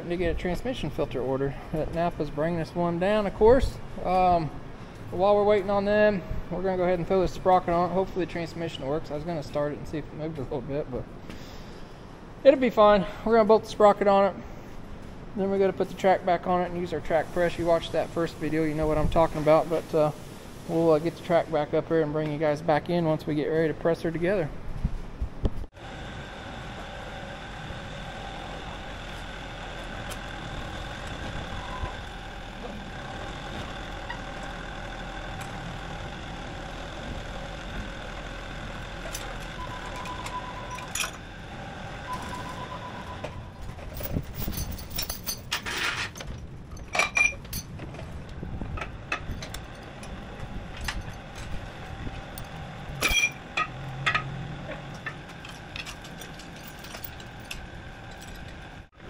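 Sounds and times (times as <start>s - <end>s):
forklift engine running: 25.0s - 45.1s, 45.7s - 59.0s
metallic clanks of track chain: 38.9s - 41.2s, 42.1s - 48.0s, 50.7s - 51.6s, 52.3s - 58.6s
short beeps: 39.6s - 40.9s, 42.1s - 43.4s.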